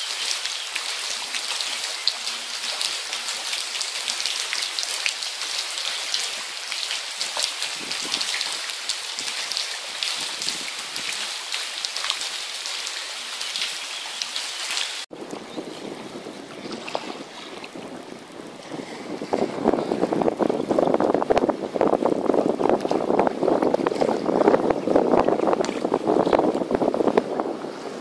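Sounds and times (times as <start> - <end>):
heavy rain hissing: 0.0 - 15.1.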